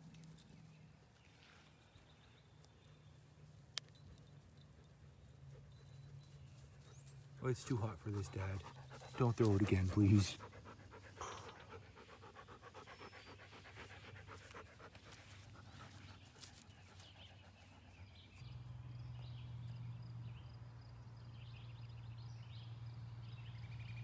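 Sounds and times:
birds chirping: 0.0 - 20.5
dog panting: 6.8 - 18.3.

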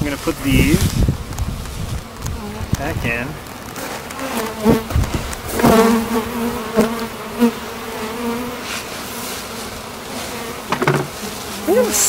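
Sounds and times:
bees buzzing: 0.0 - 12.0
wooden knocks: 10.7 - 11.2.

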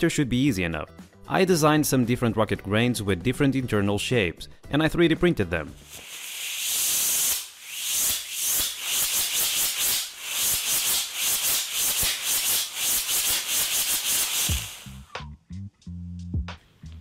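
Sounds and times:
rocket motor hissing and chuffing: 5.8 - 15.1.

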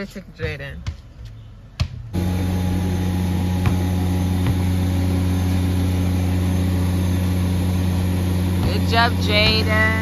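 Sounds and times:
low mechanical hum: 2.1 - 10.0.

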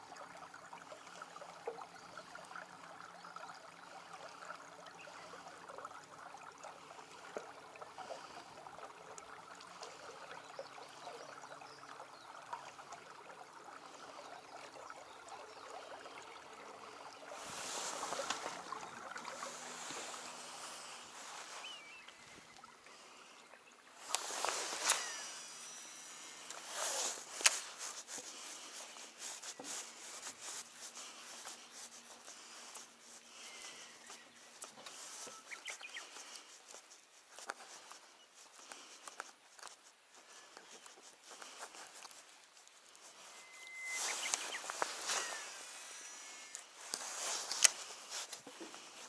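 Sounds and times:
light ticks and rubbing: 0.0 - 22.8, 23.4 - 49.0
fishing reel spool whining: 4.4 - 29.6, 43.1 - 49.0
fishing reel clicks: 24.8 - 27.5.

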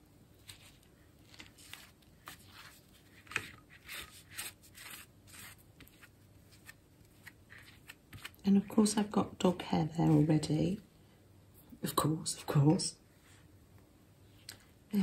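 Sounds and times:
brush scraping fabric: 0.4 - 8.4.

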